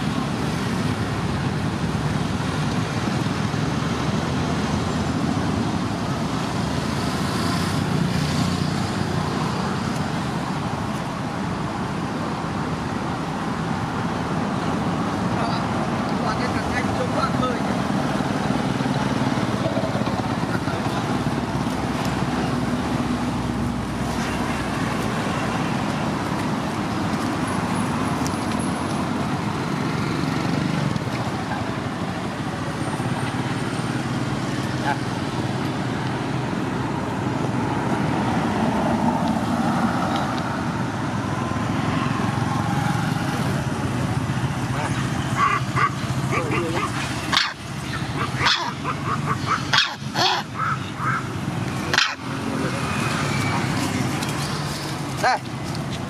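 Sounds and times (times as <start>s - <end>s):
animal barking: 44.7s - 51.3s, 51.9s - 52.3s
animal yelping: 44.7s - 51.3s, 51.9s - 52.3s.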